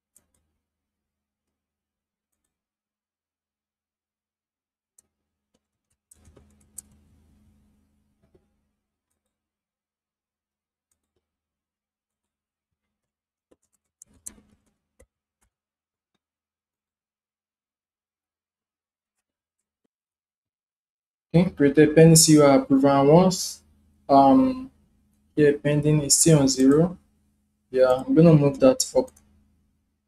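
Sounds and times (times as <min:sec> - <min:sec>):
computer mouse clicks: 0:05.0 - 0:07.0, 0:13.0 - 0:15.5
keyboard typing: 0:05.0 - 0:07.1, 0:12.9 - 0:15.5, 0:26.3 - 0:26.9.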